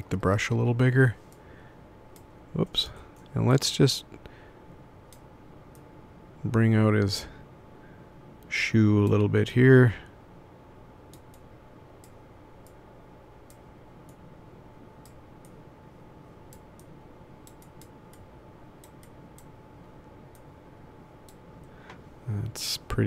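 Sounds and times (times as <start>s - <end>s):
faint steady hum: 0.0s - 23.0s
computer mouse clicks: 5.1s - 5.9s, 11.1s - 12.8s, 16.5s - 19.5s.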